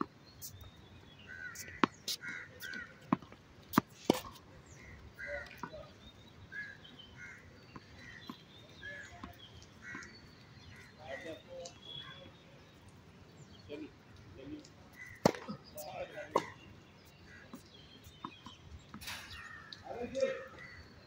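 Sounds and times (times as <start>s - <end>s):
birds cawing: 1.3s - 3.0s, 4.2s - 5.7s, 6.5s - 11.4s, 19.3s - 20.9s
tennis ball pops: 15.2s - 15.6s.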